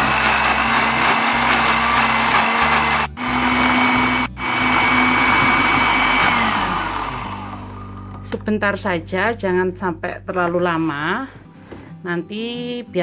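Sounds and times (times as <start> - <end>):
blender running: 0.0 - 8.1.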